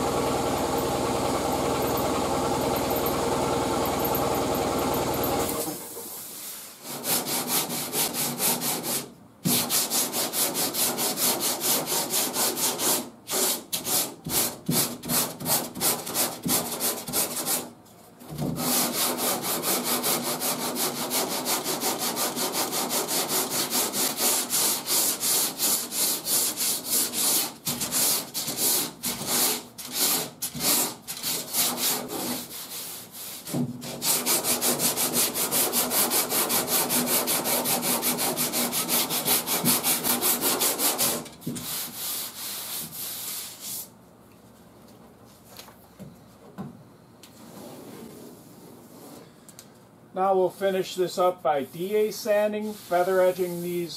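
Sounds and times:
sandpaper scraping filler: 0:06.0 - 0:17.7, 0:18.4 - 0:44.0, 0:51.7 - 0:53.9.

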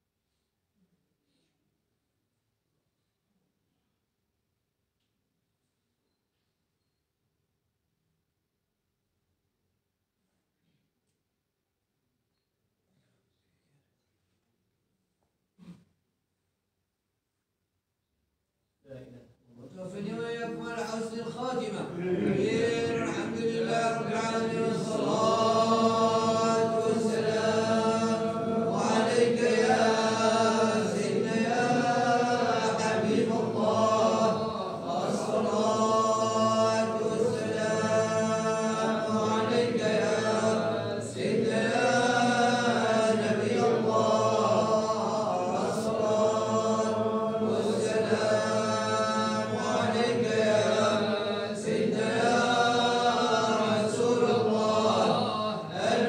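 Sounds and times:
held vocal drone: 0:21.9 - 0:56.0.

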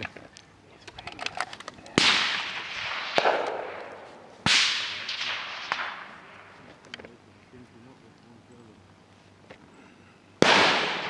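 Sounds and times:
rifle shots with rolling echo: 0:01.9 - 0:06.8, 0:10.4 - 0:11.0.

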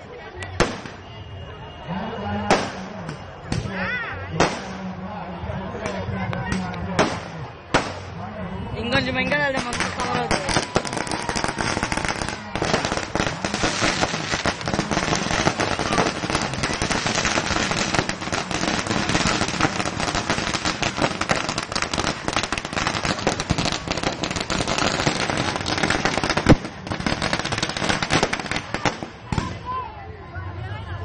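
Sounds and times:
firecrackers crackling: 0:00.0 - 0:01.8, 0:02.4 - 0:05.0, 0:05.7 - 0:29.9
loud firecracker bang: 0:00.6 - 0:01.2, 0:04.4 - 0:04.8, 0:06.5 - 0:08.1, 0:09.5 - 0:29.7.

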